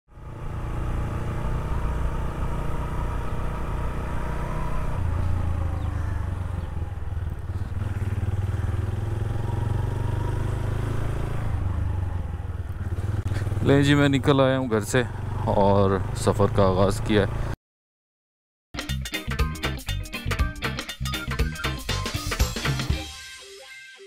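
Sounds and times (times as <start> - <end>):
motorcycle engine running: 0.1 - 17.5.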